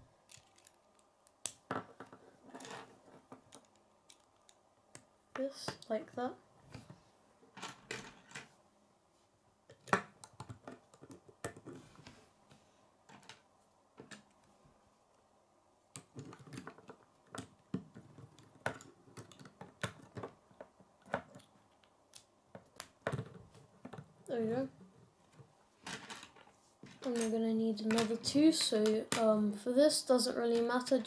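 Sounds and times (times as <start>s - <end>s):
plastic pieces clicking together: 0.3s - 1.6s, 3.4s - 4.6s.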